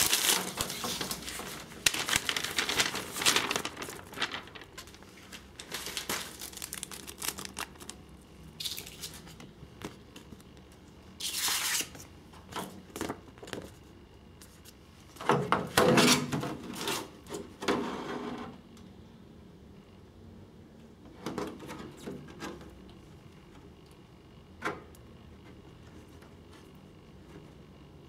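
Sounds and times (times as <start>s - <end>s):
plastic shell crinkling: 0.0s - 9.2s.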